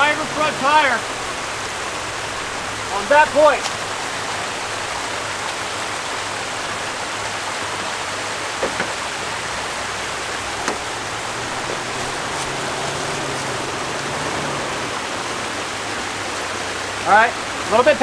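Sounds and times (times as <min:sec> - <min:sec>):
creek water rushing over rocks: 0:00.0 - 0:18.0
low engine hum: 0:00.0 - 0:18.0
faint knocks: 0:10.6 - 0:10.9.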